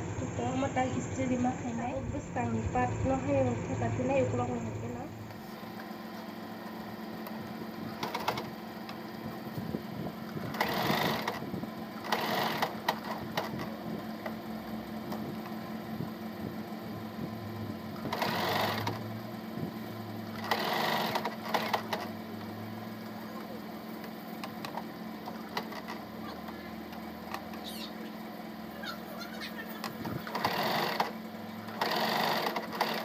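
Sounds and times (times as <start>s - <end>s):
sewing machine stitching: 7.9s - 8.6s, 10.3s - 14.4s, 17.9s - 19.1s, 20.2s - 22.5s, 24.4s - 26.6s, 29.4s - 33.0s.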